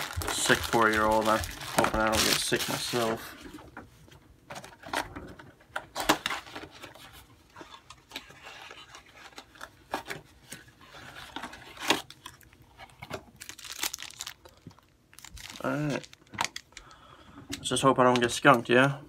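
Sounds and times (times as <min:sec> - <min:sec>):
foil packs rustling: 0:00.0 - 0:03.4, 0:13.3 - 0:16.7.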